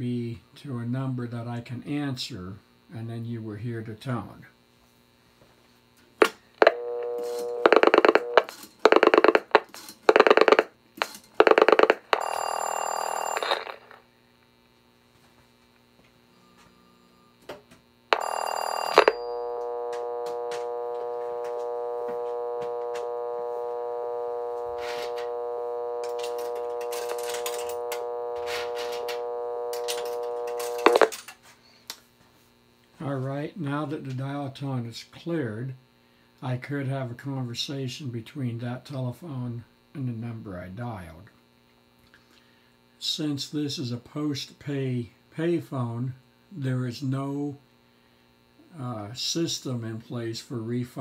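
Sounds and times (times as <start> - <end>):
telephone dial tone: 6.6 - 10.7, 11.4 - 14.0, 18.2 - 31.2
telephone ringing signal: 6.6 - 10.7, 11.4 - 14.0, 18.2 - 31.2
rotary dial pulsing pops: 6.6 - 12.3, 18.9 - 31.1.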